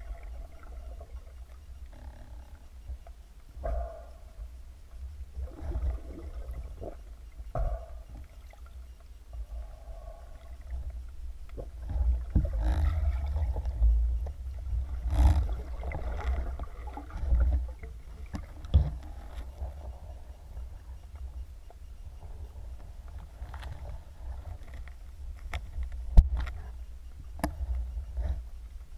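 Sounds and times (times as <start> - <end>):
underwater low rumble: 0.0 - 28.9
rushes of water: 11.6 - 19.8.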